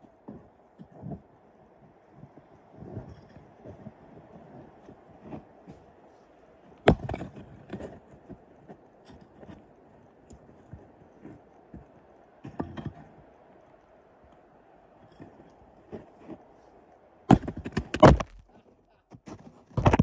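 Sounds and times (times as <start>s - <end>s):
axe striking firewood: 6.9s - 7.2s, 17.3s - 18.4s.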